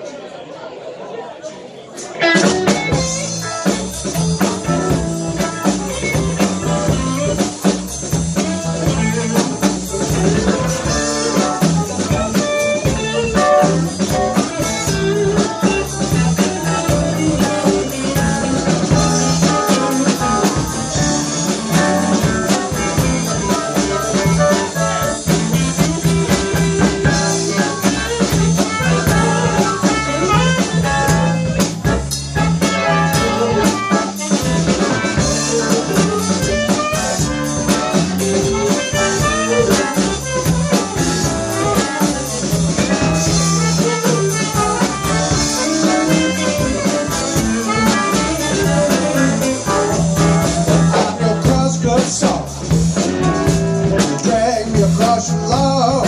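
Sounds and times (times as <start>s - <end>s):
blues band playing: 1.9s - 56.0s.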